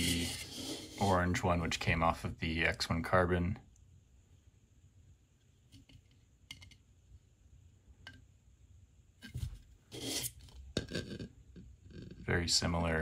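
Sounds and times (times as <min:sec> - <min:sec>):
plastic vase rustling scrapes: 0:00.0 - 0:01.2, 0:09.3 - 0:10.6.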